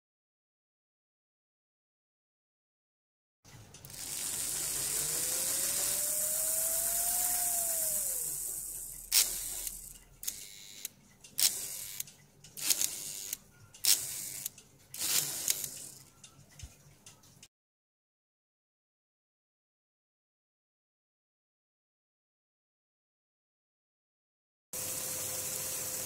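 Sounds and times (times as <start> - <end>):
electric motor whining: 3.9 - 10.9.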